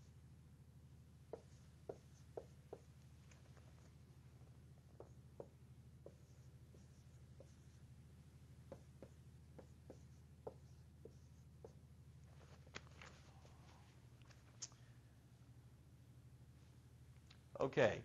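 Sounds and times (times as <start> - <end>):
low steady hum: 0.0 - 18.0
marker squeaking on whiteboard: 1.3 - 4.0, 4.8 - 7.9, 8.6 - 11.9.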